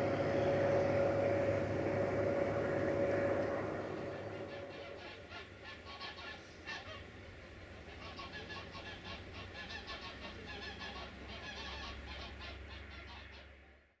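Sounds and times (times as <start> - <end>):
flock of birds calling: 0.0 - 7.1
low steady rumble: 0.0 - 13.8.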